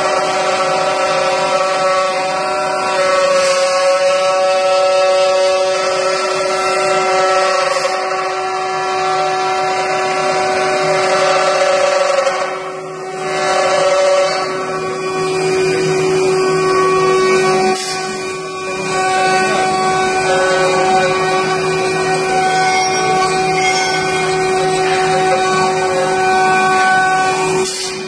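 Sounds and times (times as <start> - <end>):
router spindles high-pitched whine: 5.8 - 28.0.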